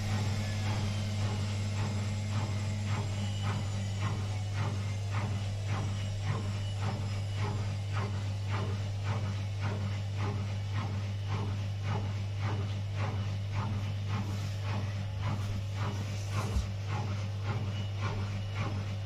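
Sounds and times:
washing machine low hum: 0.0s - 19.0s
laundry sloshing in washing machine: 11.9s - 19.0s.

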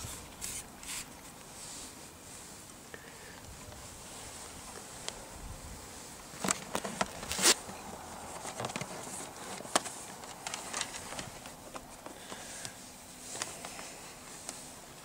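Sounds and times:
cable scraping plastic trim: 6.4s - 7.6s.

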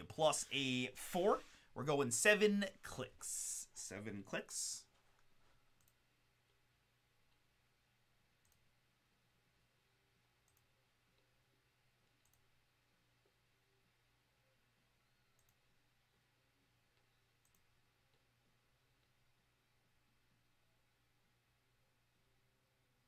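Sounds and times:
low steady hum: 0.0s - 23.0s
computer mouse clicks: 5.2s - 6.6s, 8.4s - 8.7s, 10.4s - 11.3s, 12.0s - 12.5s, 15.3s - 15.6s, 16.9s - 18.2s.

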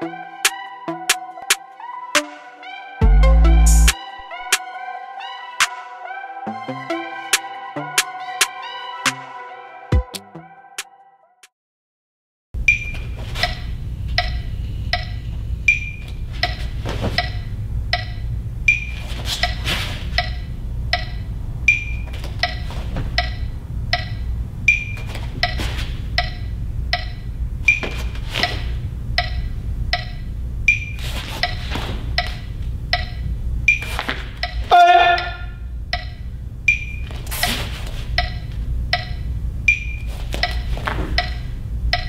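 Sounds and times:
low steady hum: 12.6s - 34.7s, 35.3s - 42.0s
wood-block percussion clicks: 14.2s - 16.6s, 17.2s - 28.6s, 29.2s - 35.3s, 35.9s - 37.1s, 38.1s - 40.6s, 41.2s - 42.0s.

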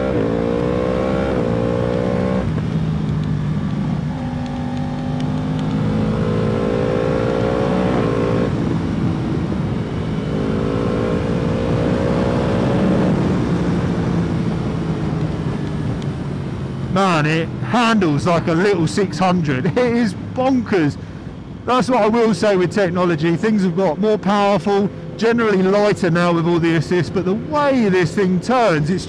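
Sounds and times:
motorcycle engine revving: 0.0s - 16.6s
wind rushing over microphone: 0.0s - 17.6s.

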